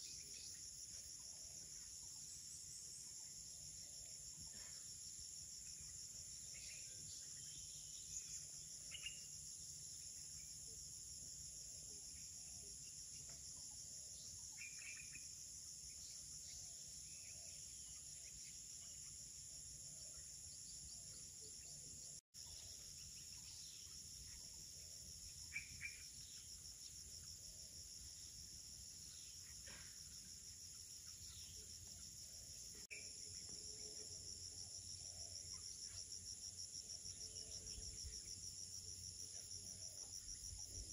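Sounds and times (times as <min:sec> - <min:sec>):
bird chirps: 0:00.0 - 0:10.6, 0:14.2 - 0:34.2
night insect chorus: 0:00.0 - 0:40.9.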